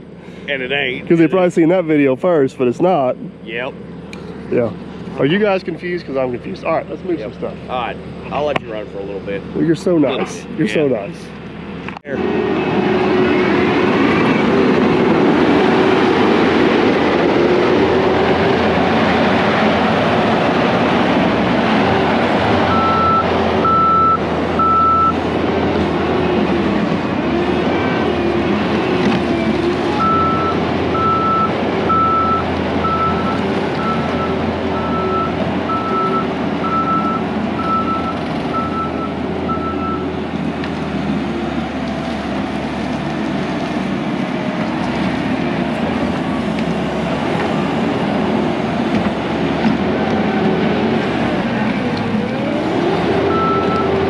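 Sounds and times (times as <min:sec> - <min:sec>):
diesel engine under load: 0:00.0 - 0:54.0
backup alarm beeps: 0:22.7 - 0:25.2, 0:30.0 - 0:40.0, 0:53.3 - 0:54.0.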